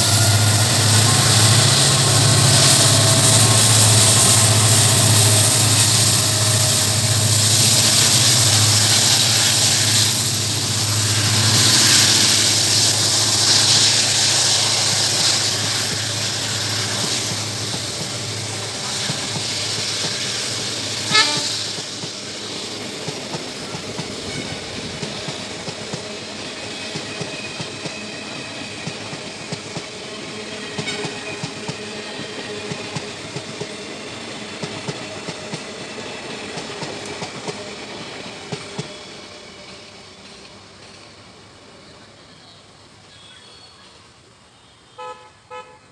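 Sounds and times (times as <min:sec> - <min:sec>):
wheels clacking over rail joints: 0:00.0 - 0:41.3
train coaches rumbling past: 0:00.0 - 0:45.9.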